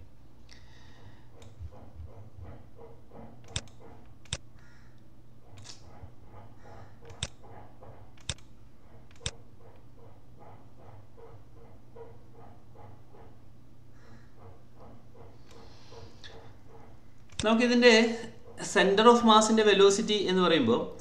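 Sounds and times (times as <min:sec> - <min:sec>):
low steady hum: 0:00.0 - 0:21.0
computer mouse clicks: 0:01.4 - 0:01.6, 0:03.4 - 0:04.4, 0:05.6 - 0:05.9, 0:07.0 - 0:07.4, 0:08.2 - 0:08.5, 0:09.1 - 0:09.4.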